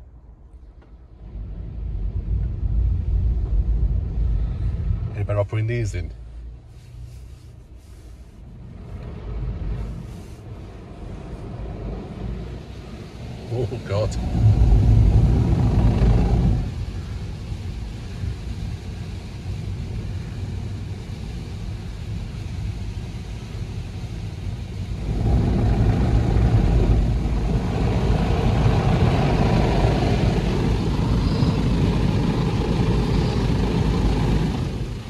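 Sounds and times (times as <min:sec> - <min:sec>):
car wash machine rumbling: 0:00.8 - 0:35.0
brushes sweeping windscreen: 0:06.6 - 0:17.1
water washing across glass: 0:24.4 - 0:35.0.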